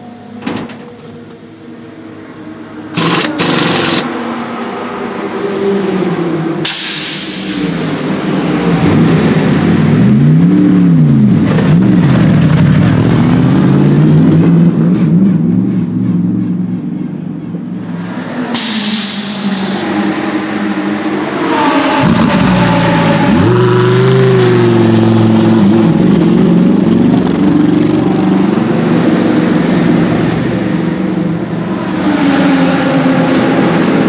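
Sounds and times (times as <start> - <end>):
car engine revving: 2.9 - 4.2
pneumatic wheel gun rattling: 3.0 - 4.1
air hiss blast: 6.7 - 8.0, 18.6 - 19.9.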